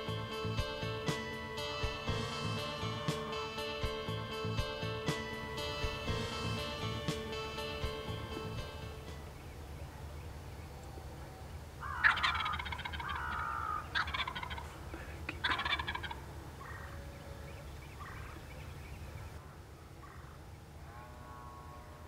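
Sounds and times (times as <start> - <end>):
turkey gobbling: 11.9 - 17.0.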